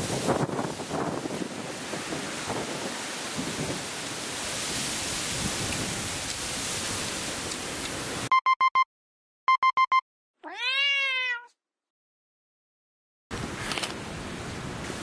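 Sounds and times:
wind on microphone: 0:00.0 - 0:08.1
electronic beeps: 0:08.3 - 0:08.9, 0:09.5 - 0:10.0
cat meowing: 0:10.4 - 0:11.6.

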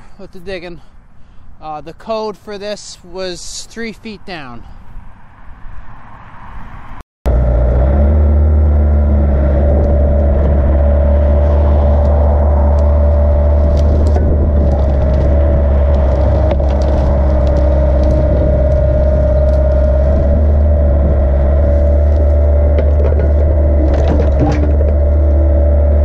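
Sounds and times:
diesel engine running: 0:07.3 - 0:26.0
steady whine: 0:07.3 - 0:26.0
bucket ticks and scrapes: 0:11.3 - 0:25.6.

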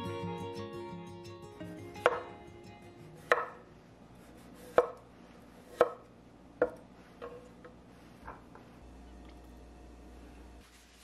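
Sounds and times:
knife chopping on wooden board: 0:02.0 - 0:02.3, 0:03.2 - 0:03.6, 0:04.6 - 0:05.0, 0:05.6 - 0:06.0.

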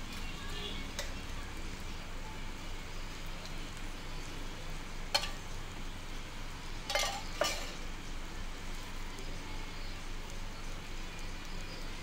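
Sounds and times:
flatbread sizzling on griddle: 0:00.0 - 0:12.0
steel cups clinking: 0:06.9 - 0:07.8.

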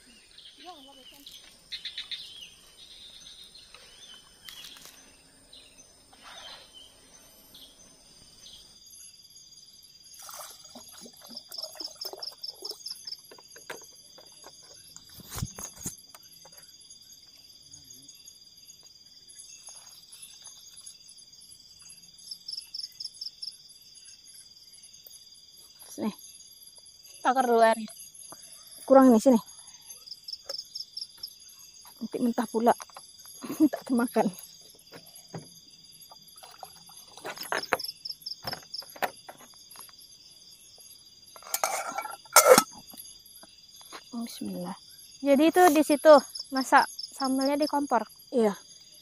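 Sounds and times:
crickets chirring: 0:00.0 - 0:49.0
pulsed insect trills: 0:00.0 - 0:49.0.

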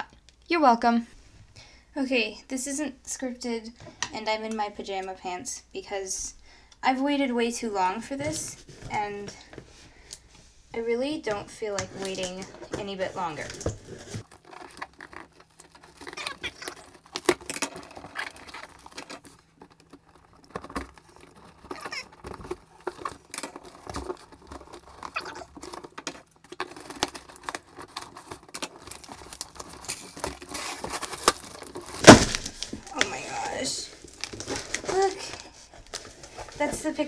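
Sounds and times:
fingernails scratching packing tape: 0:13.3 - 0:19.3, 0:21.1 - 0:32.0
cardboard box ripping open: 0:13.7 - 0:19.4, 0:20.1 - 0:35.2.

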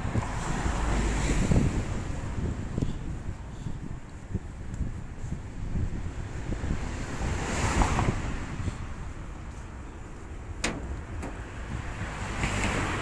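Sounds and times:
wind buffeting microphone: 0:00.0 - 0:13.0
car passing with hiss: 0:00.1 - 0:03.1, 0:06.2 - 0:13.0.

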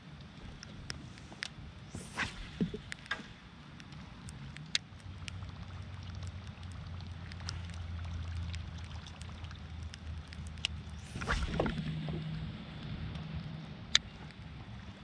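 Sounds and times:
water dripping: 0:03.8 - 0:14.5.

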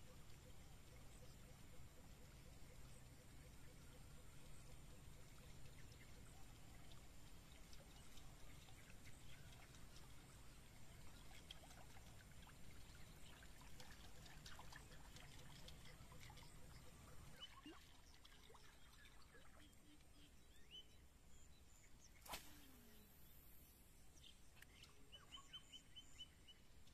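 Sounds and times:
light scattered ticks: 0:04.7 - 0:17.3
water trickling and splashing: 0:05.0 - 0:20.2.

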